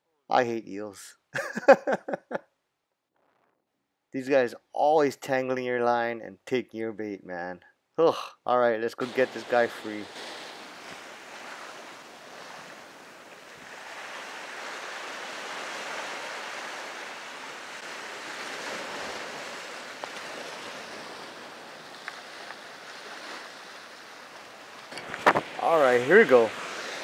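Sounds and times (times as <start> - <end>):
ocean surf on rocks: 9.0 - 27.0.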